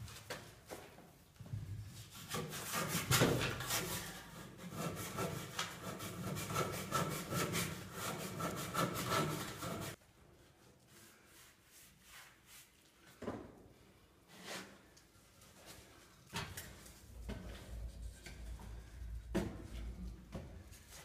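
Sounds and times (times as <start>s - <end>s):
hand saw cutting concrete block: 2.3s - 10.0s.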